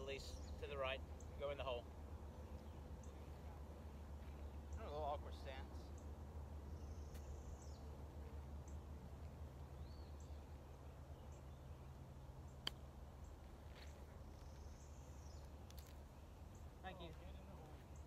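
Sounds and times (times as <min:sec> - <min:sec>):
faint bird chirps: 0:00.0 - 0:08.9.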